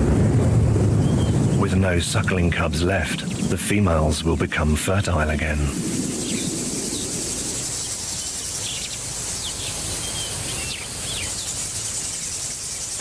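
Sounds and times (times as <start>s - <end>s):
low steady rumble: 0.0s - 8.1s
high insect hum: 0.0s - 13.0s.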